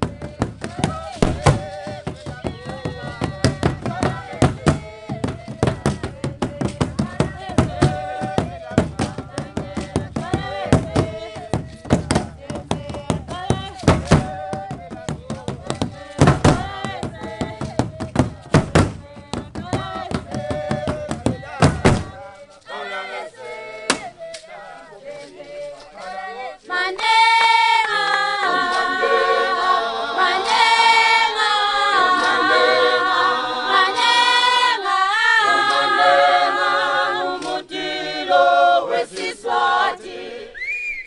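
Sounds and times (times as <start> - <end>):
sharp beats: 0.0 - 22.3
group singing: 0.0 - 40.6.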